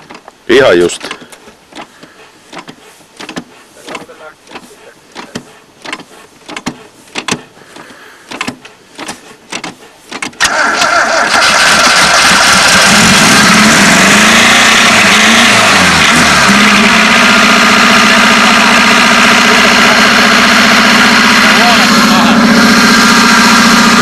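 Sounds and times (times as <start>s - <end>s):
engine cranking slowly: 0.9s - 24.0s
car engine revving: 10.4s - 24.0s.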